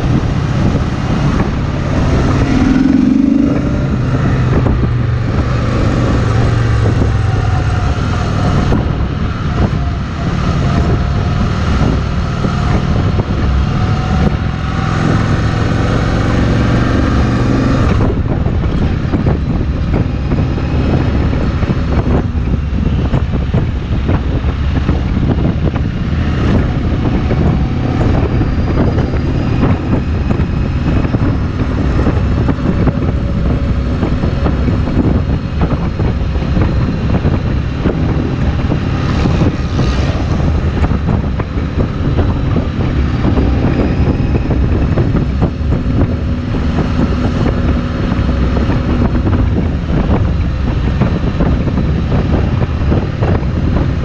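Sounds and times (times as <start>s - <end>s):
motorcycle engine cruising: 0.0s - 54.0s
wind rushing over microphone: 0.0s - 54.0s.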